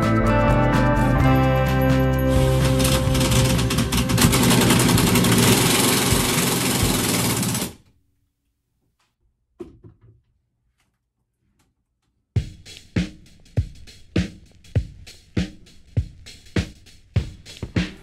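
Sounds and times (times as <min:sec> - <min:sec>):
music with drum beat: 0:00.0 - 0:07.6, 0:12.4 - 0:18.0
cordless drill driving screw: 0:02.6 - 0:07.8.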